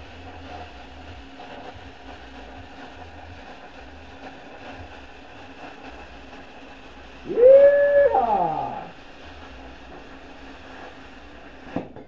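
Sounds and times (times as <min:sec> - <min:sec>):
faint hum: 0:07.2 - 0:09.2
loud sharply rising tone: 0:07.3 - 0:08.9.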